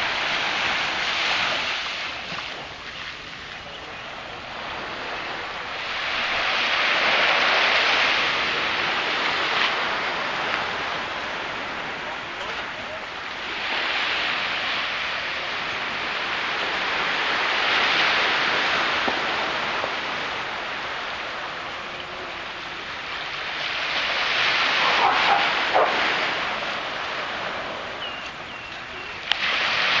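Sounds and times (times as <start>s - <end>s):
small waves on a beach: 0.0s - 30.0s
dog barking: 24.8s - 26.1s.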